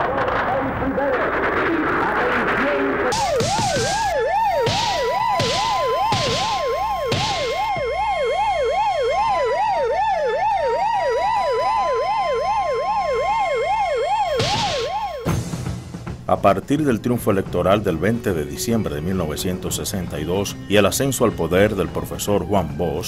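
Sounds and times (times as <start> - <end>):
warbling siren: 2.9 - 15.4
steady siren tone: 3.1 - 15.4.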